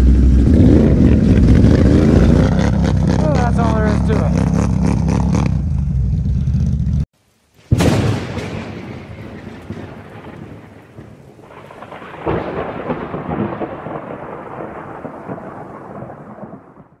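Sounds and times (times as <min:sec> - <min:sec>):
thunderclap crackling: 0:00.0 - 0:17.0
rain hiss: 0:07.2 - 0:16.0
rolling thunder: 0:07.7 - 0:17.0.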